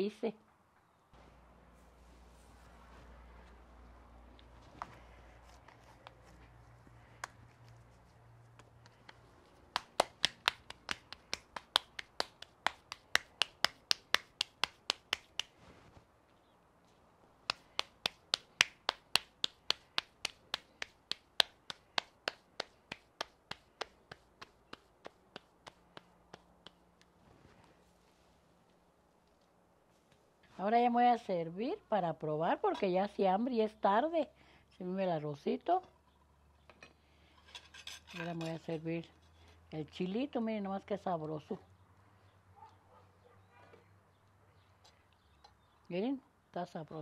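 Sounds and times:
hands slapping dough: 8.5s - 15.6s, 17.4s - 27.1s.

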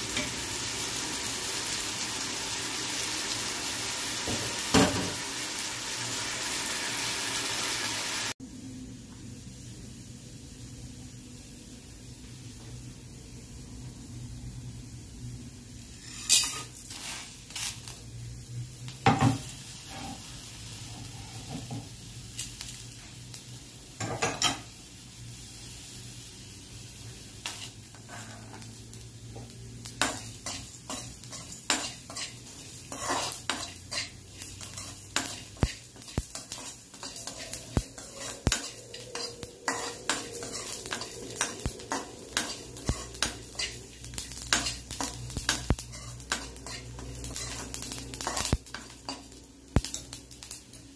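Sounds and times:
spoon scraping and clinking pan: 34.7s - 43.8s.

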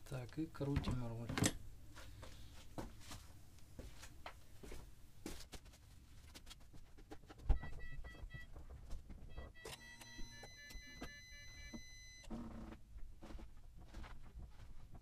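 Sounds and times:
high steady tones: 9.3s - 12.3s.

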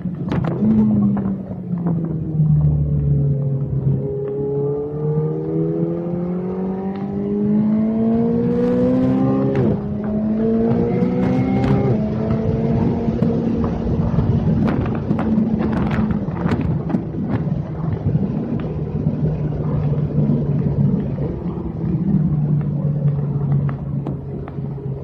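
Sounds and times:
road noise rumble: 0.0s - 25.0s
car engine from inside cabin: 0.4s - 14.8s.

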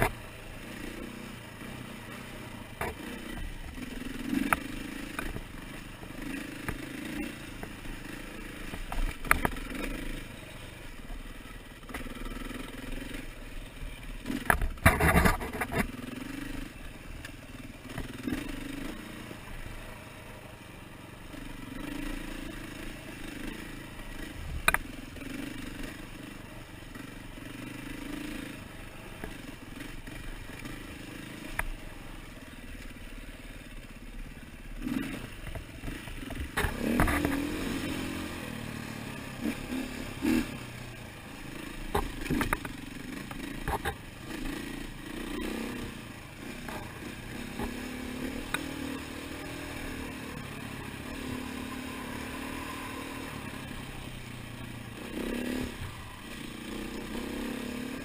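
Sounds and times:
dirt bike engine revving: 0.0s - 17.0s, 17.8s - 20.2s, 21.3s - 32.5s, 33.1s - 58.0s
knocks and clatter over rocks: 14.4s - 16.0s.

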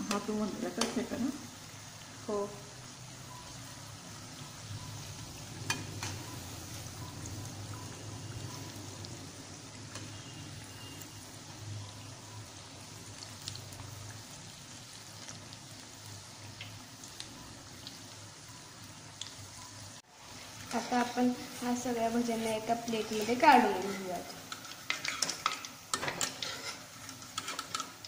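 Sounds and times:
fritters sizzling in hot oil: 0.0s - 28.0s
steel spoon clicking on pan: 23.8s - 28.0s.

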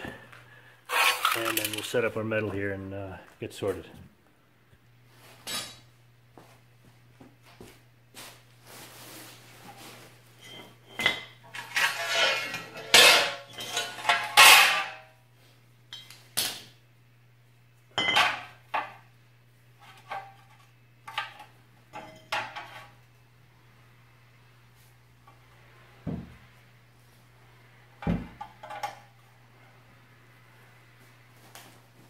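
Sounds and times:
steel pieces clanking on concrete: 0.9s - 2.0s, 10.4s - 15.1s.

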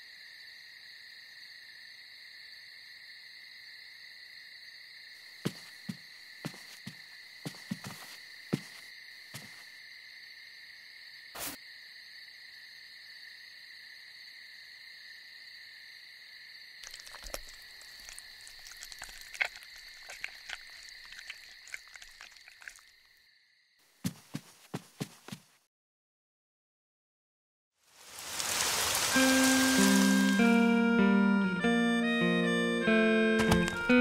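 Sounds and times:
chorus of night creatures: 0.0s - 23.6s, 27.9s - 34.0s
soft footsteps: 5.4s - 9.6s, 24.0s - 25.6s, 33.4s - 33.9s
crackling and rustling: 16.8s - 22.9s, 28.0s - 30.6s.

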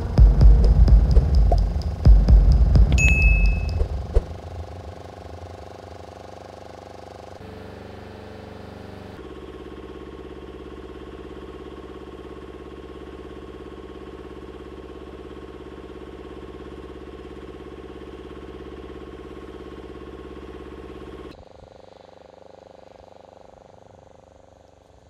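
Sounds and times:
faint steady high tone: 0.0s - 5.6s
truck engine pulsing hum: 0.0s - 9.8s.

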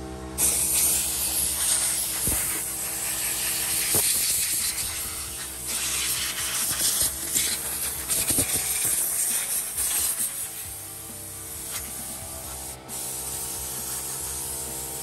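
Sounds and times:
compressed air hissing: 0.4s - 15.0s.

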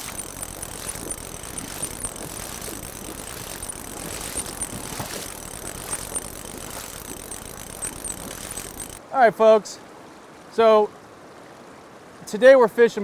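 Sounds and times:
boots splashing through water: 0.0s - 7.2s.

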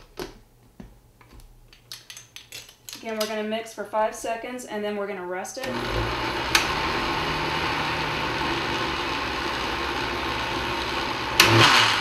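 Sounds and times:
blender motor running: 5.6s - 12.0s.

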